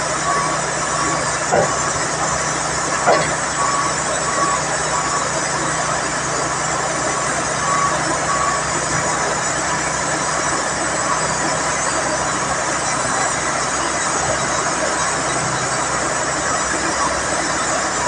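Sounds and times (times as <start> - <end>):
heavy diesel engine running: 0.0 - 18.0
faint short beeps: 3.0 - 5.4.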